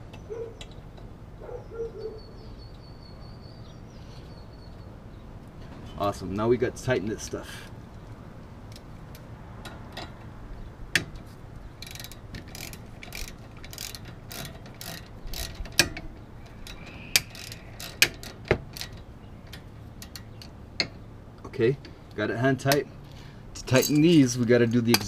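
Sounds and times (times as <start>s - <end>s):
metallic clicks and clinks of bolts: 11.8s - 21.0s, 23.6s - 25.0s.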